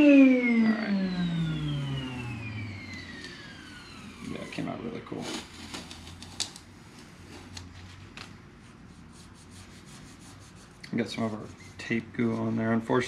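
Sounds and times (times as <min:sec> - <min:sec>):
low steady hum: 0:00.0 - 0:13.0
scratchy handling noise: 0:05.1 - 0:12.8.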